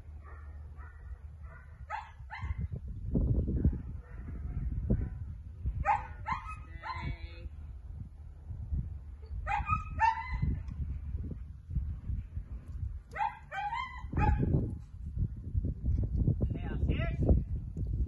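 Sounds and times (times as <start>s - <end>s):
wind rumble on microphone: 0.0s - 18.0s
dog barking and yipping: 0.2s - 2.6s, 5.8s - 7.1s, 9.5s - 10.5s, 13.2s - 14.5s.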